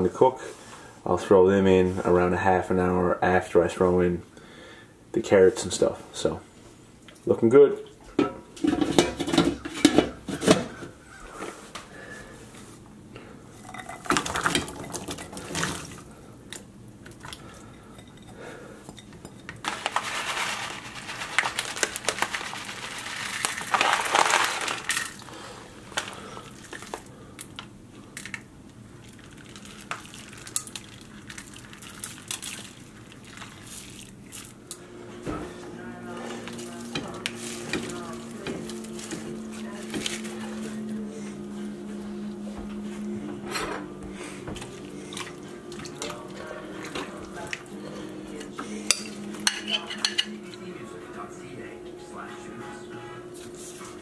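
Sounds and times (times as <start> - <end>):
pot and utensils clattering: 8.2 - 10.9, 13.6 - 16.0, 48.4 - 50.5.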